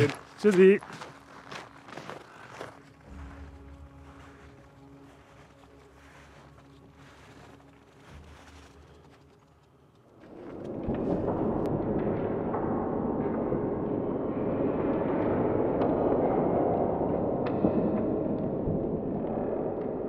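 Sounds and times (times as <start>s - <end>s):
faint crackles: 0.0s - 11.7s
thunder-like rumbling: 10.4s - 20.0s.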